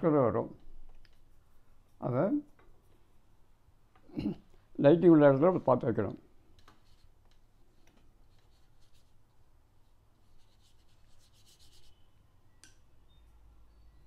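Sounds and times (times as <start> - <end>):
paintbrush strokes on paper: 6.8 - 12.1.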